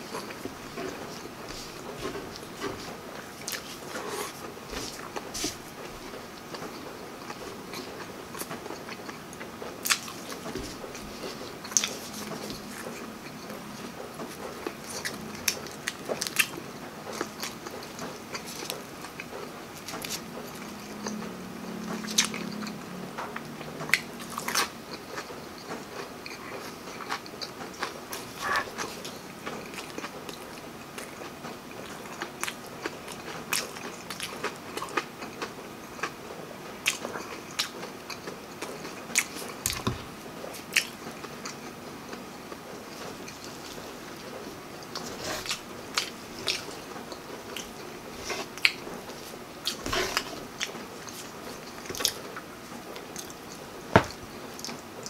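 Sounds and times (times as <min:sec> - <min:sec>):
person chewing food: 0:00.0 - 0:36.2, 0:36.8 - 0:55.0
food crunching: 0:36.8 - 0:54.8.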